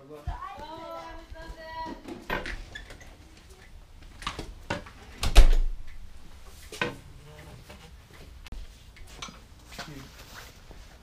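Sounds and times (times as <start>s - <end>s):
footsteps: 0.0s - 5.1s, 5.8s - 11.0s
glass door opening and closing: 1.8s - 3.2s, 4.2s - 6.0s.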